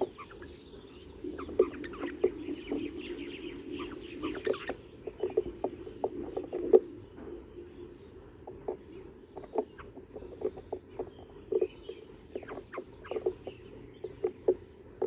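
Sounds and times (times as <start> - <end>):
bird chirps: 0.0 - 15.0
beaks tapping on stone: 8.5 - 14.7.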